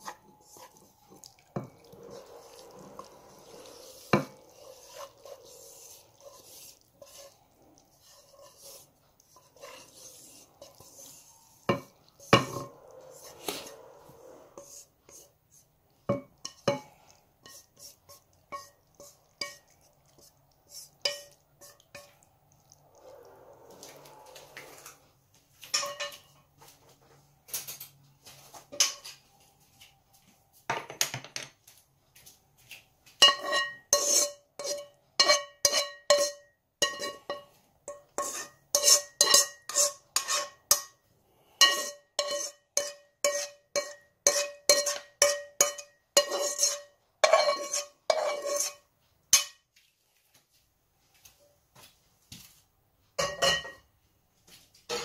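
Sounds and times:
pot and bowl clinking: 8.0 - 13.3, 16.1 - 22.3, 25.6 - 26.4, 33.2 - 41.0, 41.6 - 49.6, 53.2 - 53.9.

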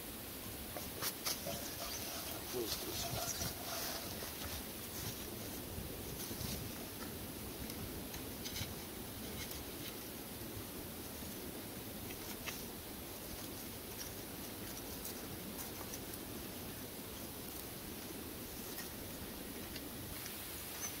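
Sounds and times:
steady hiss: 0.0 - 21.0
soft scraping of wood: 0.8 - 7.1.

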